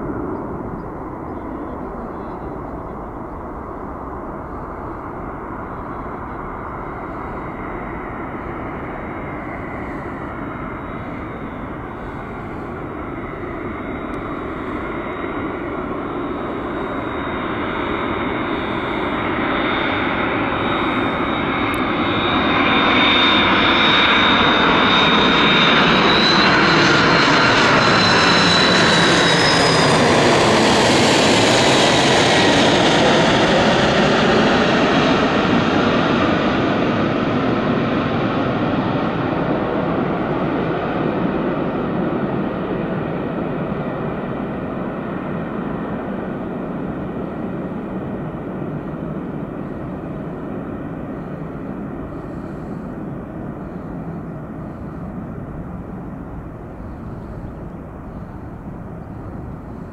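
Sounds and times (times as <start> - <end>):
high jet whine: 0.0 - 59.9
jet airliner passing overhead: 0.0 - 59.9.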